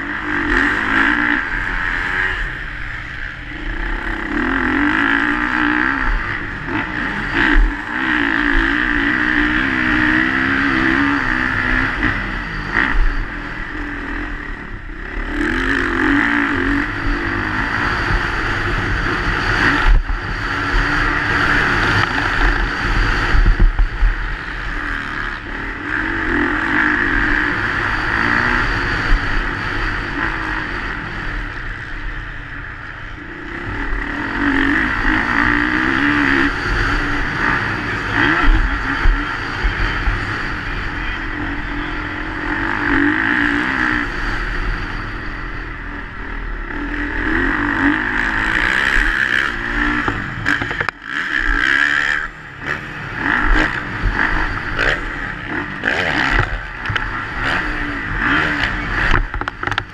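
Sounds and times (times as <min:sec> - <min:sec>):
motocross bike engine revving: 0:00.0 - 0:59.9.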